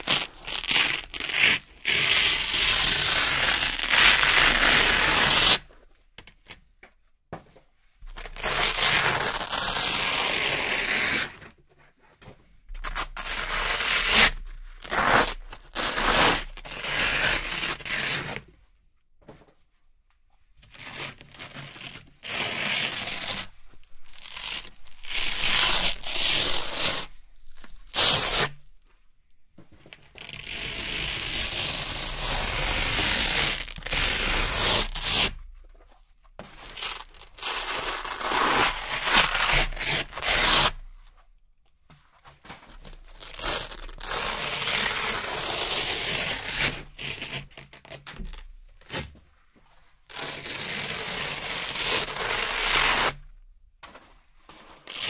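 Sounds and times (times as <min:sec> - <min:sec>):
velcro ripping: 0:00.0 - 0:05.7, 0:08.2 - 0:11.5, 0:12.8 - 0:18.4, 0:20.7 - 0:28.7, 0:30.1 - 0:35.5, 0:36.6 - 0:41.1, 0:42.7 - 0:49.1, 0:50.1 - 0:53.3, 0:54.7 - 0:55.0.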